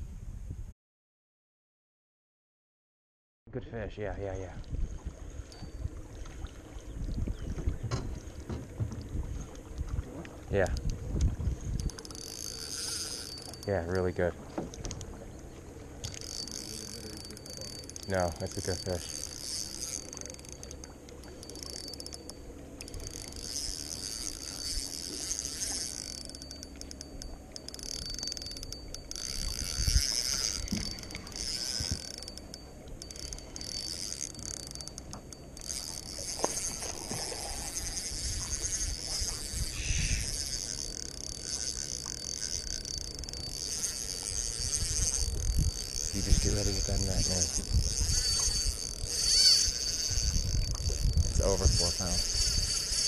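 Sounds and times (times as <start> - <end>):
fishing reel clicking and whirring: 4.2 - 53.0.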